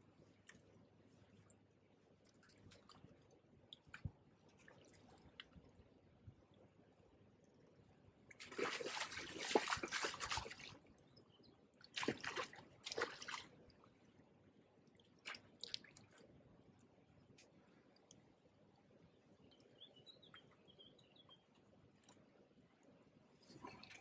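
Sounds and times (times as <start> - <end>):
fish splashing and thrashing: 8.4 - 10.8, 11.9 - 13.5.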